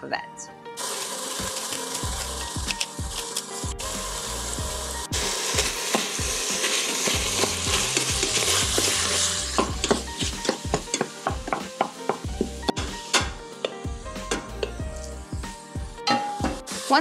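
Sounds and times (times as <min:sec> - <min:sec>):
meat sizzling: 0:00.8 - 0:17.0
masher scraping metal pot: 0:05.1 - 0:11.6.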